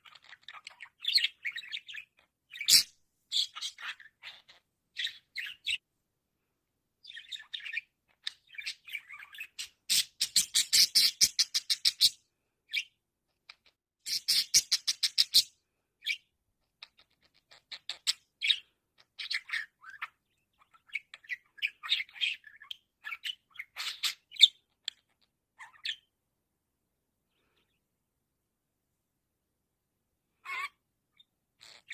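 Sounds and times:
budgerigar chattering and warbling: 0.0s - 5.8s, 7.1s - 12.8s, 13.5s - 15.5s, 16.8s - 26.1s, 30.4s - 31.9s.

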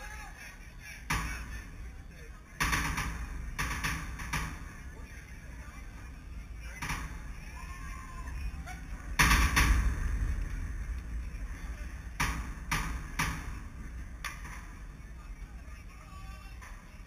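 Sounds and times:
sharp knocks: 2.6s - 4.8s, 6.8s - 7.4s, 9.2s - 11.0s, 12.1s - 14.9s.

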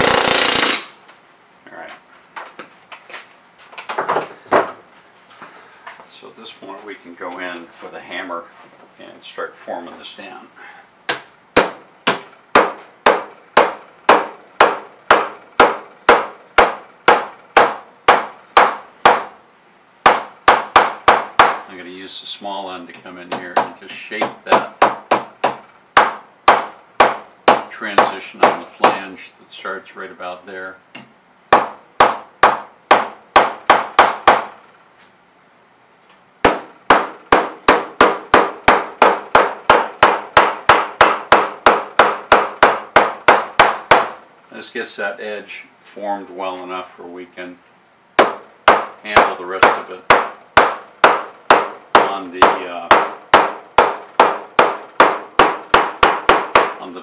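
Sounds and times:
mallet striking aluminum: 48.2s - 56.8s.

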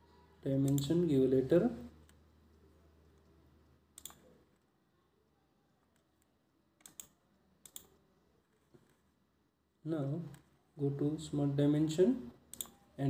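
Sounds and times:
computer mouse clicks: 2.0s - 4.4s, 5.9s - 8.0s, 12.5s - 12.8s.

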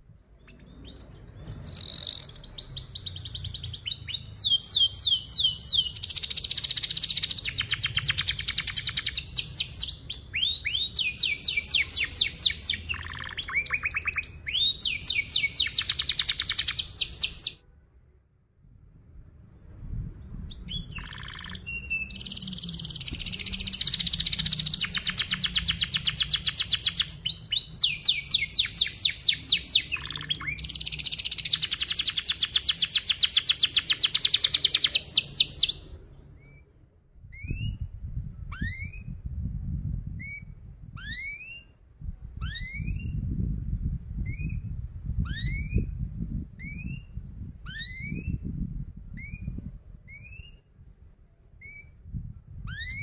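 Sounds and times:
canary singing trills: 0.4s - 17.6s, 20.5s - 36.6s.

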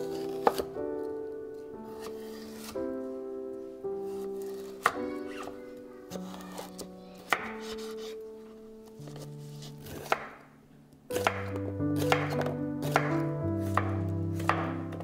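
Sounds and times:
knife chopping on wooden board: 0.2s - 0.7s, 9.8s - 10.4s, 11.2s - 15.0s.

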